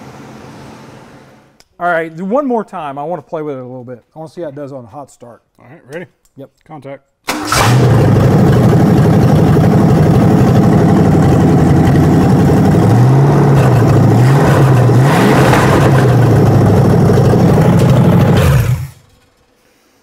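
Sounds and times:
engine revving: 7.3s - 19.3s
engine running without exhaust: 7.5s - 19.5s.

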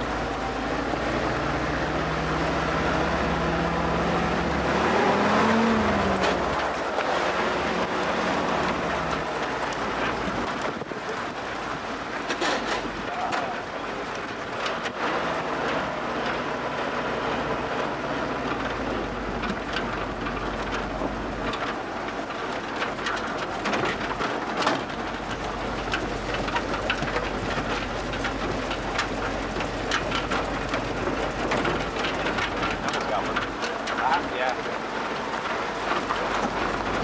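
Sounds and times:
car engine droning: 0.0s - 37.0s
tyres on gravel: 0.0s - 37.0s
rattles and clicks: 2.3s - 37.0s.

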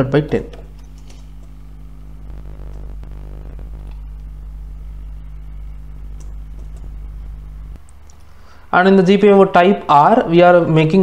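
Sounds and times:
computer keys clicking: 0.0s - 1.6s, 6.1s - 6.9s
low electrical hum: 0.0s - 11.0s.

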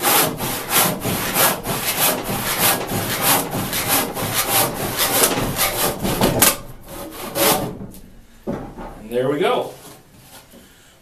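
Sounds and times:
handsaw cutting wood: 0.0s - 7.8s.

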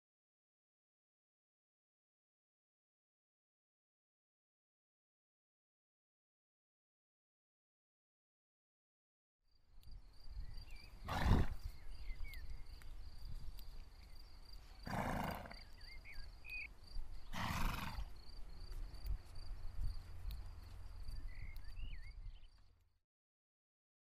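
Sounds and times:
small birds chirping: 9.6s - 22.9s
horse snorting: 11.0s - 11.6s, 14.8s - 15.7s, 17.3s - 18.1s.

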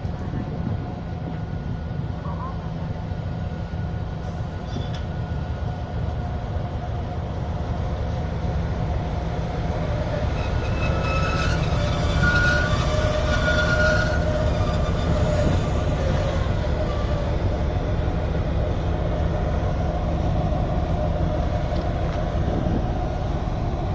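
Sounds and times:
diesel locomotive rumbling: 0.0s - 23.9s
high squealing tones: 10.2s - 16.5s.

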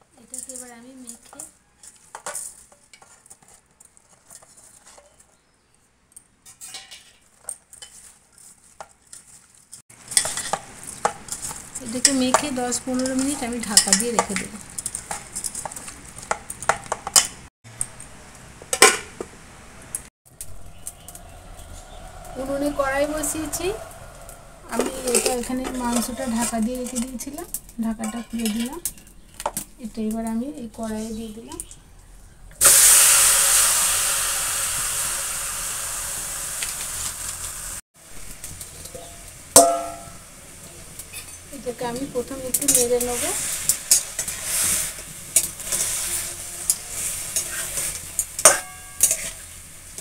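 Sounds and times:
meat sizzling in hot pan: 32.6s - 38.3s.

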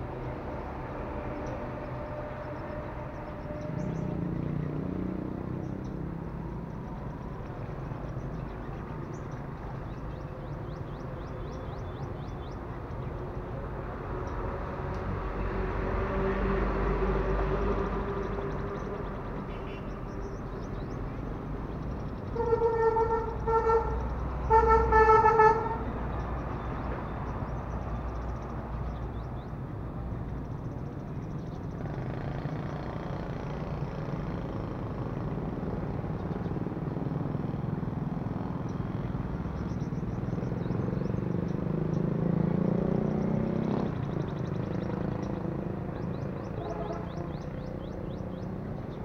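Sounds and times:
road traffic rumble: 0.0s - 49.0s
vehicle horn beeping: 19.5s - 20.0s, 22.4s - 25.9s, 46.6s - 47.6s.

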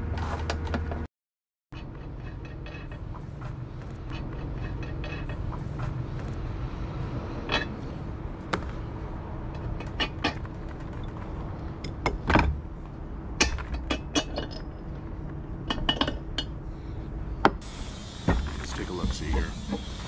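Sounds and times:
metal tools clinking on wood: 13.4s - 14.9s.

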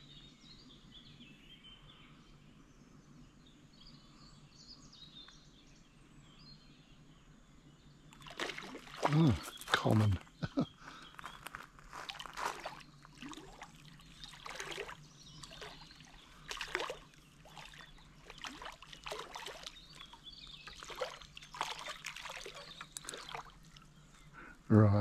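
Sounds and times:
fish splashing at water surface: 8.2s - 10.0s, 12.1s - 20.1s, 20.7s - 23.8s.

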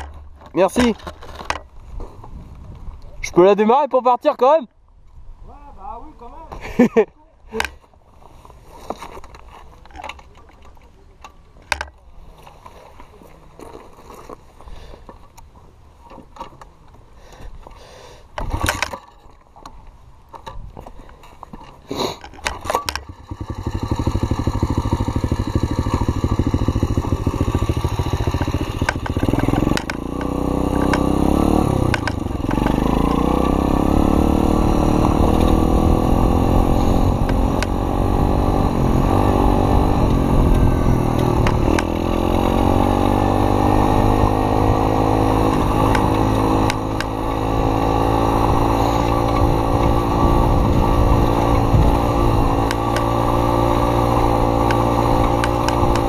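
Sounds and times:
dirt bike engine revving: 22.5s - 56.0s.

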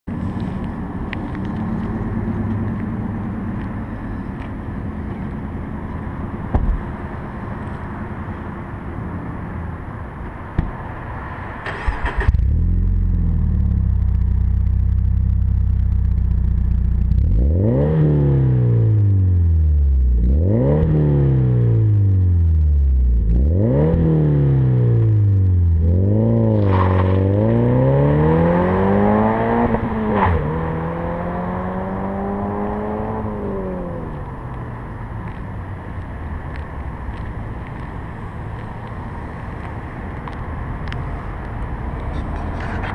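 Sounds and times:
car engine revving and accelerating: 16.9s - 34.9s.

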